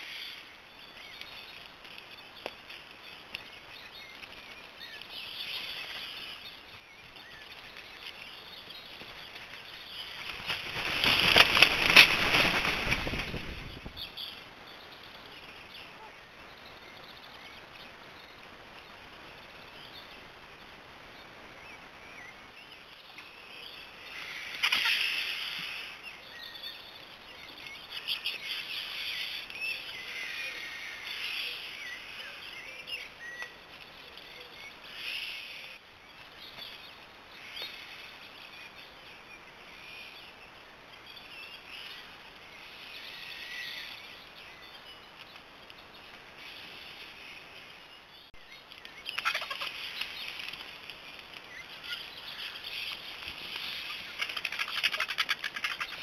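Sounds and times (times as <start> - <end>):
bird calls and chirps: 0.0 - 56.0
wings flapping: 8.9 - 14.1, 24.5 - 25.8, 48.7 - 56.0
vultures squawking: 49.1 - 50.0, 53.6 - 56.0.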